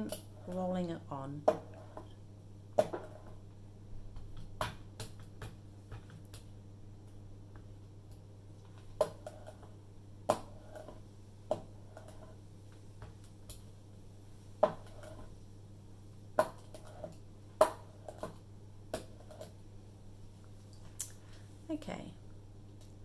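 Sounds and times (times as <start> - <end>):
soft rolling rub: 1.4 - 2.2, 2.8 - 3.5, 8.8 - 9.8, 10.4 - 13.4, 14.0 - 17.2.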